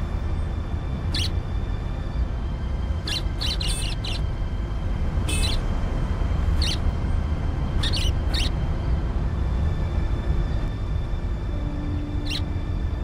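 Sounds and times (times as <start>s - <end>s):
steady low rumble: 0.0s - 13.0s
budgerigar chirping: 1.1s - 1.4s, 3.0s - 4.3s, 5.3s - 5.6s, 6.5s - 6.8s, 7.8s - 8.6s, 12.2s - 12.5s.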